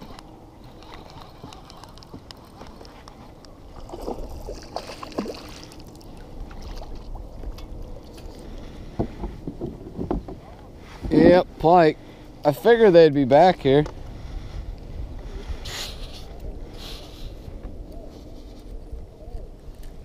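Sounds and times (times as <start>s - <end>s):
water sloshing around kayak hull: 0.7s - 11.4s.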